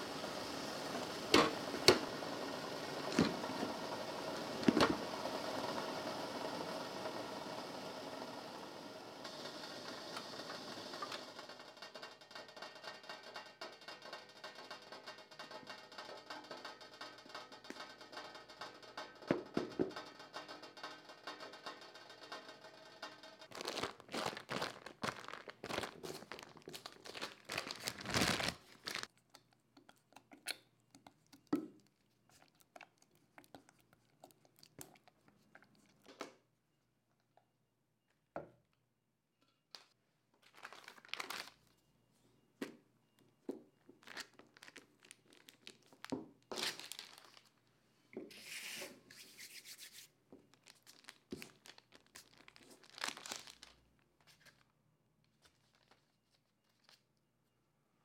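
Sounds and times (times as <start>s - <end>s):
parchment paper crinkling: 23.5s - 29.7s, 39.7s - 41.8s, 44.0s - 47.6s, 49.2s - 57.2s.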